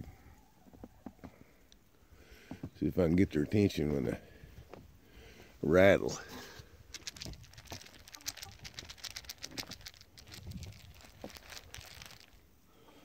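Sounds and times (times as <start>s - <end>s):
grain rattling in a plastic tub: 6.9s - 12.4s.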